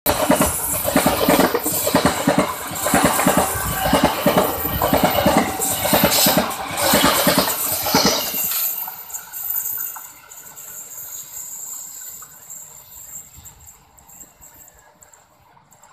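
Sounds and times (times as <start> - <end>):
train wheels clattering over rail joints: 0.1 - 10.6.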